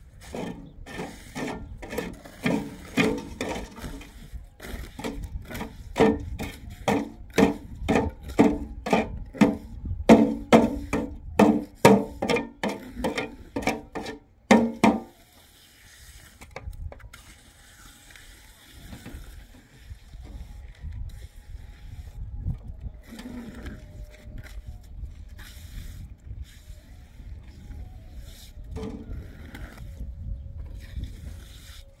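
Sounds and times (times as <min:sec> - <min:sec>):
hand tool scraping mortar: 0:00.0 - 0:20.4, 0:30.7 - 0:32.0.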